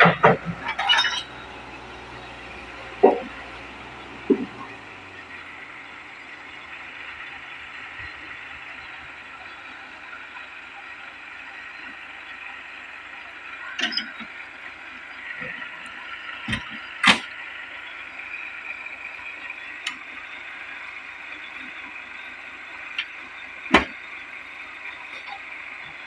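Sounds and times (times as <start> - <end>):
metal knocks and clanks: 0.0 - 1.4.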